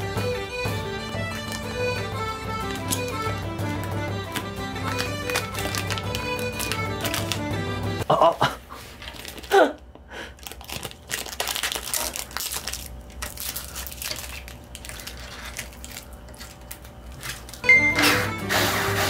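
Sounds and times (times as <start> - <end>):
plastic film crinkling: 1.2 - 7.6, 8.9 - 9.7, 10.3 - 17.7.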